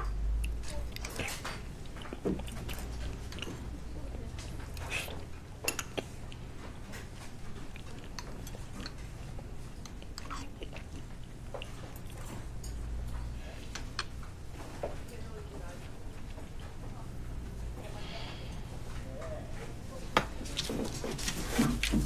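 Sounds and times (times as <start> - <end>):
person chewing: 0.4 - 3.7, 4.7 - 6.5, 7.2 - 12.4.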